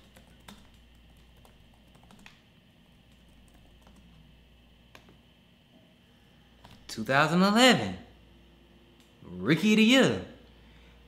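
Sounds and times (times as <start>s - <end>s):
keyboard typing clicks: 0.0s - 2.4s, 3.1s - 4.2s
low steady hum: 0.0s - 11.0s.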